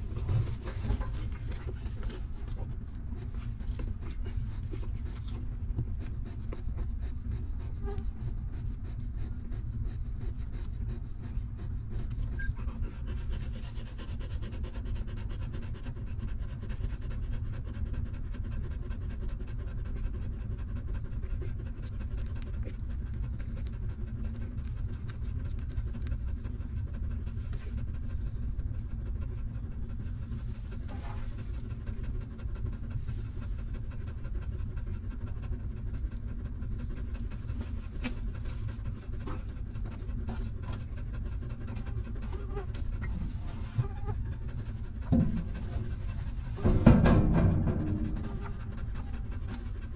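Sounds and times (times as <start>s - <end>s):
dog panting rapidly: 0.0s - 49.9s.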